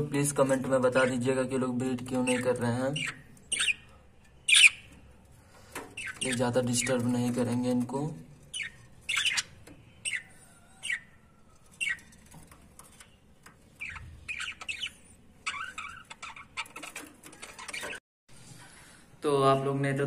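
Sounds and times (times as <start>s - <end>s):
budgerigars chirping: 2.1s - 5.1s, 6.0s - 7.2s, 8.5s - 12.1s, 13.7s - 18.0s.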